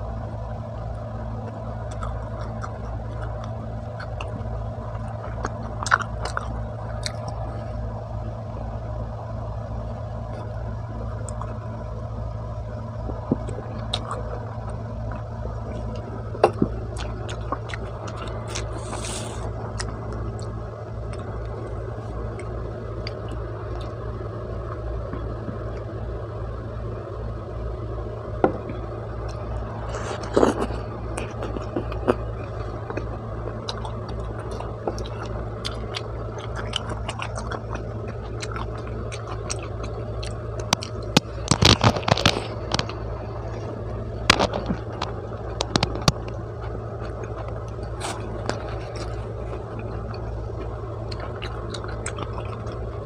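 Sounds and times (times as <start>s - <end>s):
steady low hum: 0.0s - 53.0s
chewing pizza: 0.1s - 53.0s
crust crunching: 12.8s - 25.9s, 28.2s - 53.0s.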